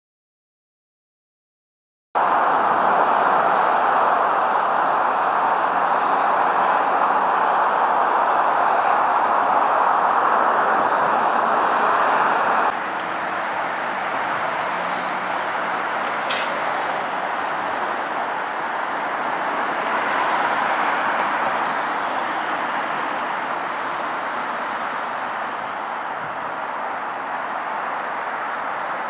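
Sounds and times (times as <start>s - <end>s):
road traffic noise: 2.2s - 29.0s
sharp click: 16.3s - 16.6s.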